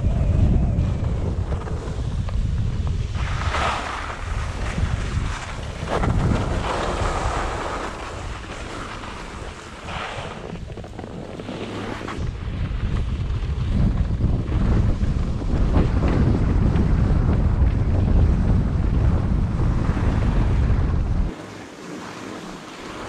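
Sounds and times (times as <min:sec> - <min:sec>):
skis carving snow: 0:00.0 - 0:23.0
wind buffeting microphone: 0:00.0 - 0:23.0.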